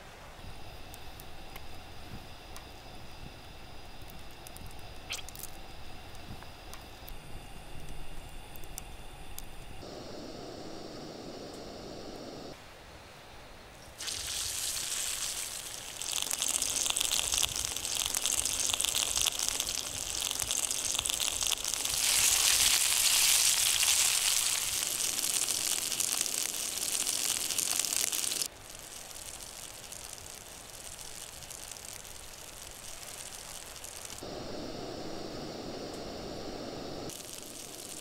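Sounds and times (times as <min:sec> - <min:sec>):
faint steady hiss: 0:00.0 - 0:38.0
meat sizzling in hot oil: 0:14.0 - 0:38.0.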